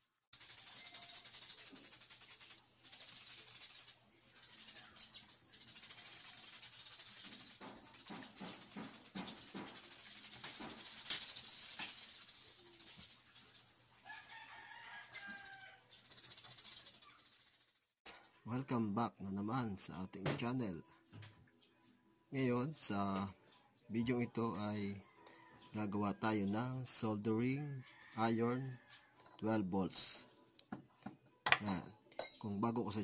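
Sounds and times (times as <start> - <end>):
rooster crowing: 14.0 - 15.9, 25.0 - 25.8.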